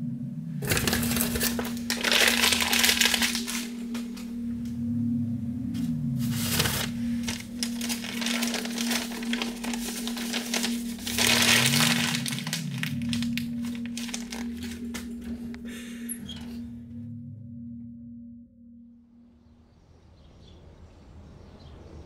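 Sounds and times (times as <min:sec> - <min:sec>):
crackling static-like noise: 0:00.0 - 0:15.9
sliding low tones: 0:00.0 - 0:19.1
low drone: 0:00.0 - 0:22.0.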